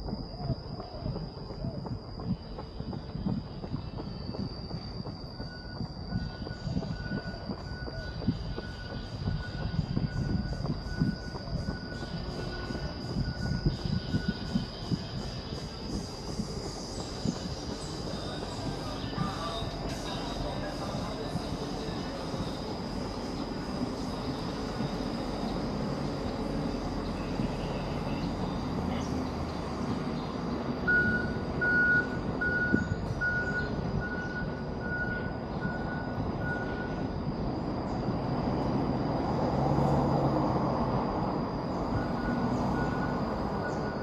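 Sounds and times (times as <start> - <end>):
city traffic hum: 0.0 - 44.0
thin steady high whine: 0.0 - 44.0
short electronic beeps: 30.9 - 37.0.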